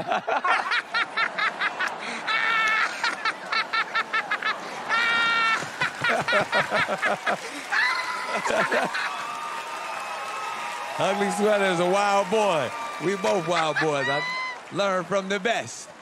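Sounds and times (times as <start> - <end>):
people laughing hard: 0.0 - 9.2, 13.0 - 14.4.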